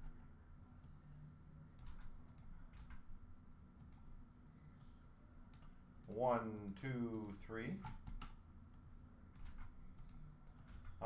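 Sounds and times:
computer mouse clicks: 0:00.8 - 0:01.1, 0:01.8 - 0:03.1, 0:03.8 - 0:04.1, 0:04.8 - 0:11.0.

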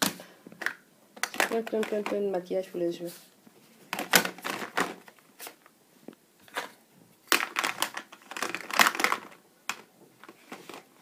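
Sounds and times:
plastic cases clacking: 0:00.0 - 0:02.3, 0:03.9 - 0:05.6, 0:06.5 - 0:11.0.

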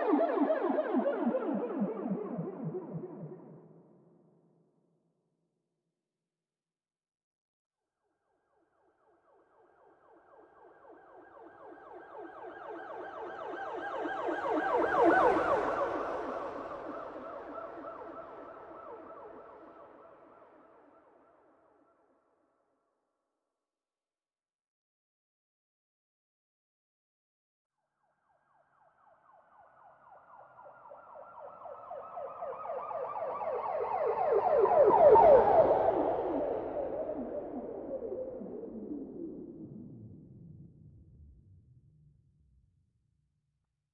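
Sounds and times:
police siren yelping: 0:30.2 - 0:37.9.

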